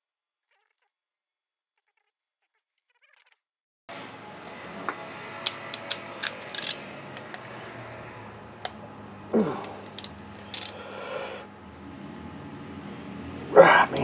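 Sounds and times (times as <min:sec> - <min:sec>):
hand tool clicking on metal: 0:09.8 - 0:10.8.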